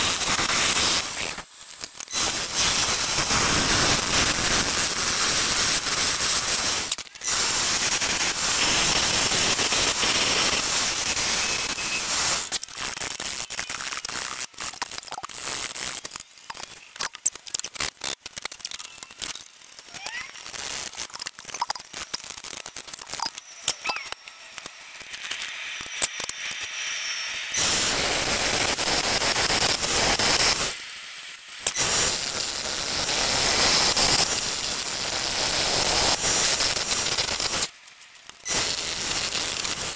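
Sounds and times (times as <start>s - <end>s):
wood lathe gouge cutting hiss: 0.0s - 16.1s, 24.6s - 31.0s, 31.6s - 37.7s, 38.3s - 39.9s
chuck and workpiece clicks: 14.3s - 15.4s, 16.0s - 27.0s.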